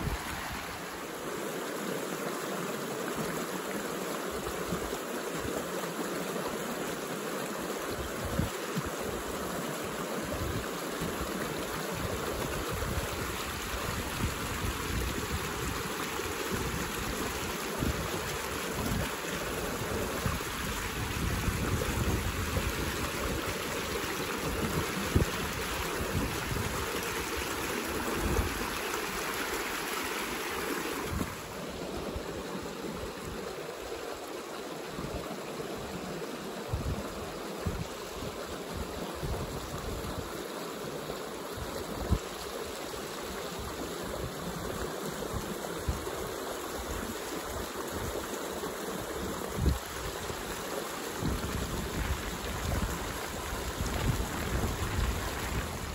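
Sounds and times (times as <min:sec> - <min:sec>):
creek water rushing over rocks: 0:00.0 - 0:55.9
wind gusts on microphone: 0:19.8 - 0:23.6, 0:31.0 - 0:31.6, 0:36.7 - 0:40.3, 0:49.2 - 0:50.4, 0:51.2 - 0:55.9.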